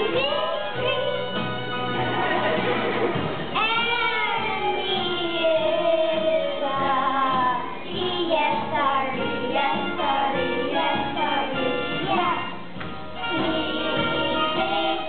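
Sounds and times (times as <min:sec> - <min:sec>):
musical accompaniment: 0:00.0 - 0:15.0
children singing: 0:03.6 - 0:15.0.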